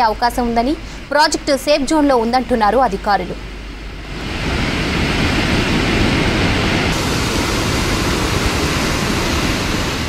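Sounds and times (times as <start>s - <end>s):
water rushing through spillway: 4.1s - 10.0s.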